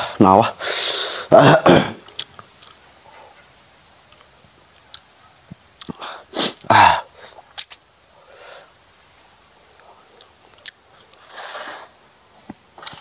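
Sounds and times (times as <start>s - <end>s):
man's forceful burst of breath: 0.0s - 1.9s, 6.0s - 7.2s
chewing noises: 2.1s - 5.1s, 9.6s - 11.3s
sharp lip clicks: 7.5s - 7.9s.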